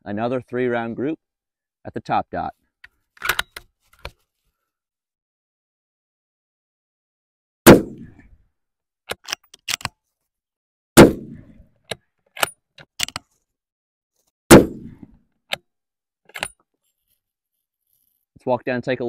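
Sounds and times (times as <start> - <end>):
rifle bolt metallic clicks: 2.8 - 4.1, 9.1 - 10.0, 11.9 - 13.3, 16.3 - 16.6
rifle shots: 7.7 - 8.2, 11.0 - 11.5, 14.5 - 15.1.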